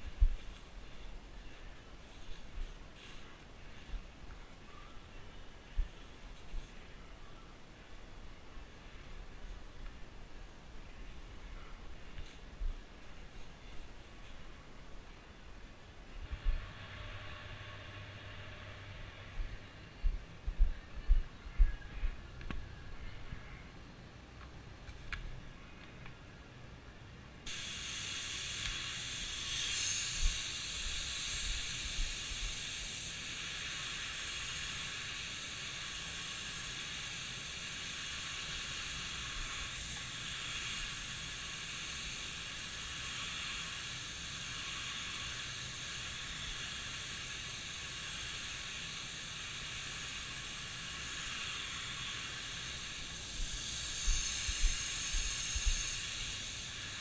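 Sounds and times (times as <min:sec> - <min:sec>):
spray gun hissing: 0:27.5 - 0:57.0.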